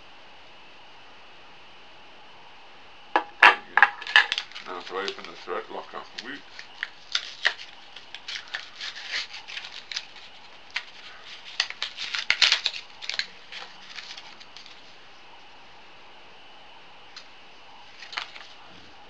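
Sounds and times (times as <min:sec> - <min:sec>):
packaging crinkling and snapping: 0:04.0 - 0:14.8, 0:18.0 - 0:18.6.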